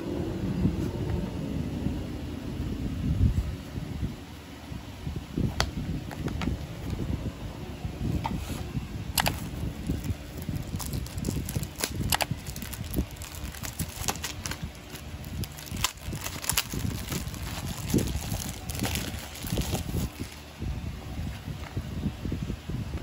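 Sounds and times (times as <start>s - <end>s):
plastic wrap crinkling: 9.2s - 20.4s.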